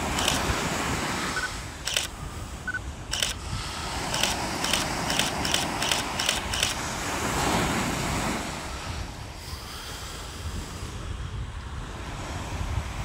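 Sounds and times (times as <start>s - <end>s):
phone camera shutter clicks: 0.0s - 0.5s, 1.4s - 3.4s, 4.1s - 6.8s
ocean surf: 0.0s - 13.0s
wave washing up on beach: 0.0s - 13.0s
wind on microphone: 0.0s - 13.0s.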